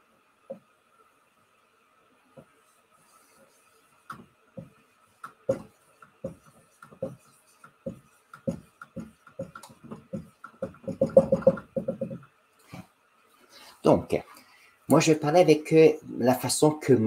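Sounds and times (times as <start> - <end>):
marker squeaking on whiteboard: 2.4 - 12.3.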